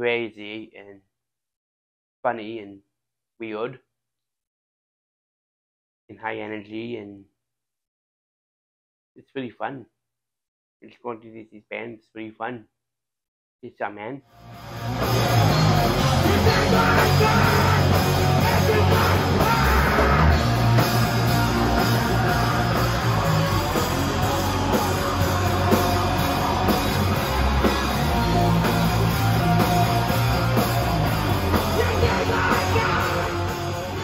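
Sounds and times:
distorted electric guitar: 14.4s - 34.0s
drum kit: 14.6s - 34.0s.

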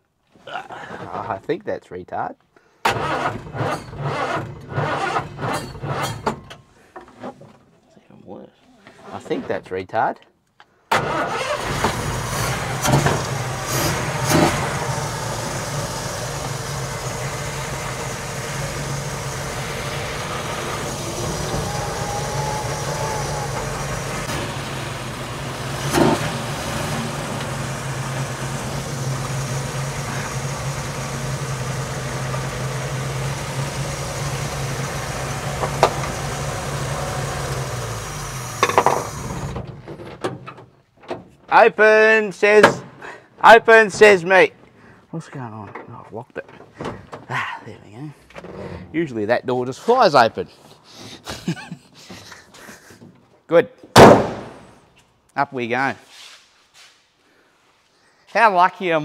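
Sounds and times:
truck engine running at low revs: 11.8s - 39.6s.

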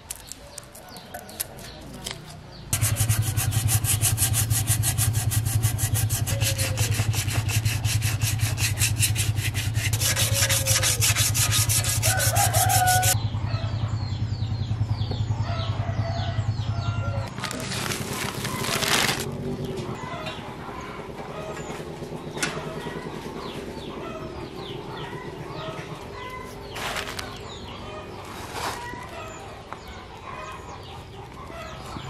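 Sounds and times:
sanding strokes on metal: 2.8s - 13.2s.

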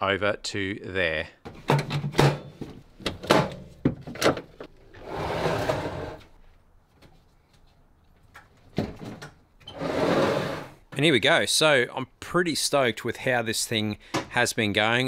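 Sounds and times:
metal box clunks and knocks: 1.4s - 4.7s
metal box scraping slide: 5.0s - 6.3s, 9.7s - 10.8s.

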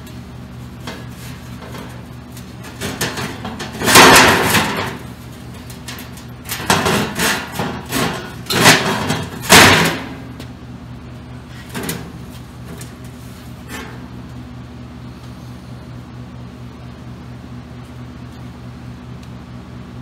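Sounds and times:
metal clanks and scrapes: 0.0s - 10.5s, 11.5s - 14.2s
steady low hum: 0.0s - 20.0s.

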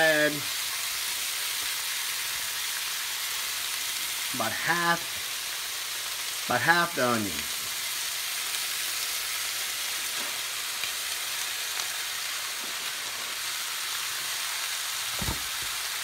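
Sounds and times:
meat sizzling in a pot: 0.0s - 16.0s
sharp knock: 15.2s - 15.7s.

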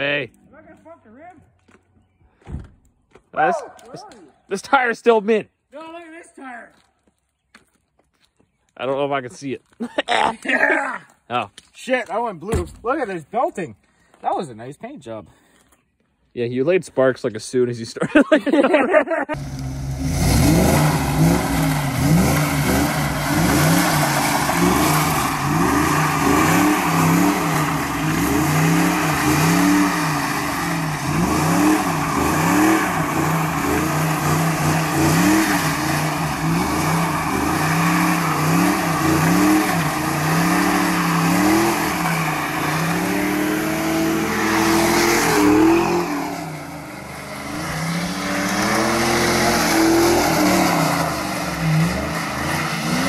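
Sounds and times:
car engine revving hard: 19.4s - 53.0s.

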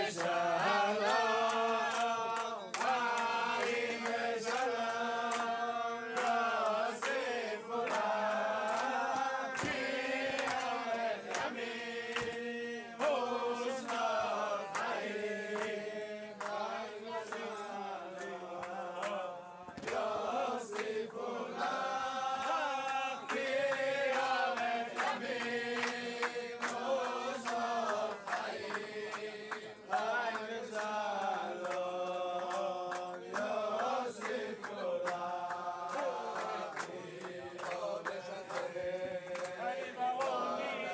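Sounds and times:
men singing in unison: 0.0s - 40.9s.

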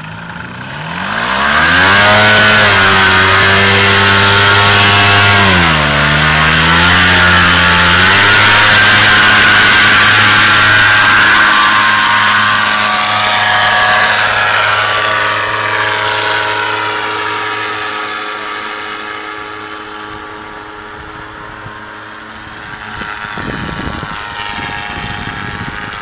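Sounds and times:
small engine droning: 0.0s - 26.0s
wind rumble on microphone: 20.0s - 26.0s.

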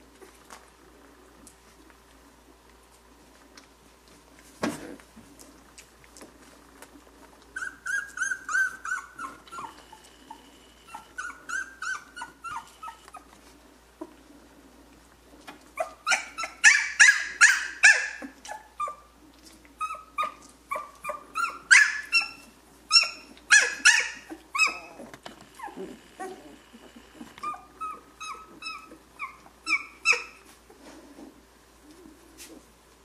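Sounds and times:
puppies squealing and whining: 7.5s - 14.2s, 15.7s - 30.6s.

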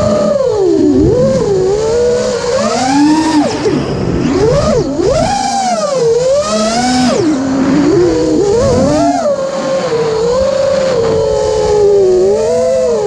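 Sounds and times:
quadcopter motors whining: 0.0s - 13.0s.

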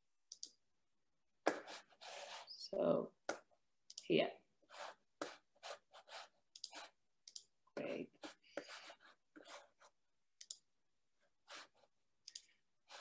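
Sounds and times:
computer mouse clicks: 0.3s - 0.6s, 3.9s - 4.1s, 6.5s - 7.5s, 10.4s - 10.6s, 12.2s - 12.5s.

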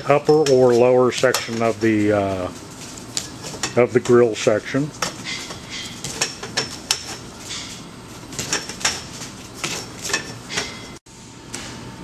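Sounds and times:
metal tubes clinking: 5.0s - 11.0s.

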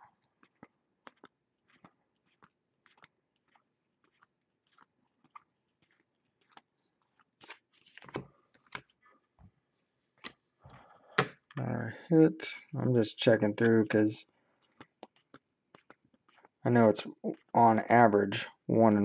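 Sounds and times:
card stack rustling: 7.4s - 9.0s.

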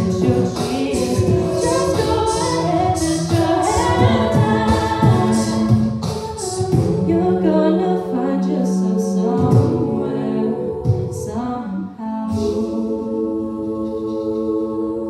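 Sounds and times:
beatboxed hi-hat hissing: 0.0s - 7.1s
beatboxed kick thumps: 0.0s - 7.4s, 9.3s - 10.0s, 10.8s - 11.5s
women singing close harmony: 0.0s - 15.0s.

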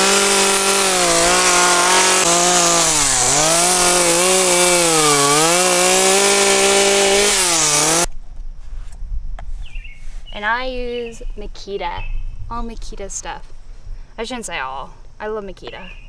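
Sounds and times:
chainsaw cutting wood: 0.0s - 8.1s.

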